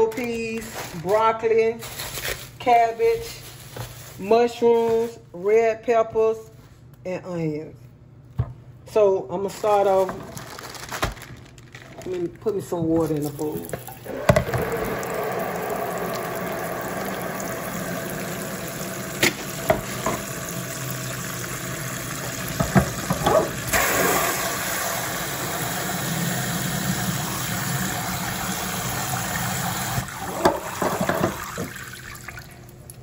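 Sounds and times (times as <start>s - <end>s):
faucet sprayer filling a bowl: 13.5s - 32.6s.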